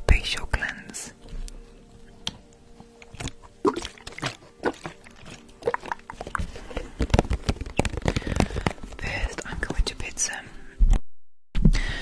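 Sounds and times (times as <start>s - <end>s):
hands rubbing and tapping microphone: 5.7s - 10.3s.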